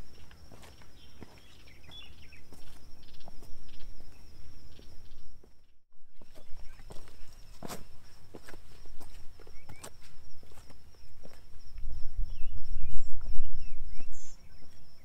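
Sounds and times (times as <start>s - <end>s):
boots crunching on loose stone: 0.0s - 3.6s, 6.2s - 11.4s.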